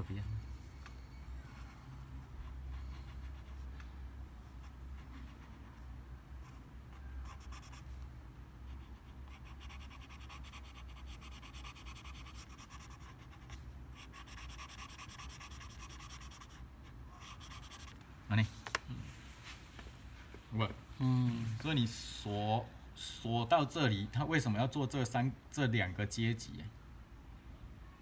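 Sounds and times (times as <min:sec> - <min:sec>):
low steady hum: 0:00.0 - 0:28.0
pencil rubbing on paper: 0:08.7 - 0:16.6, 0:17.2 - 0:18.0.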